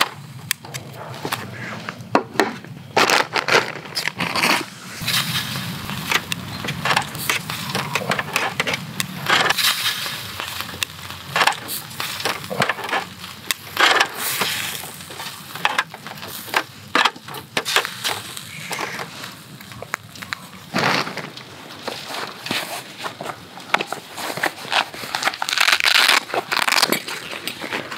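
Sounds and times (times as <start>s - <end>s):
sharp pops: 0.0s - 24.0s
meat sizzling on a grill: 4.9s - 19.7s.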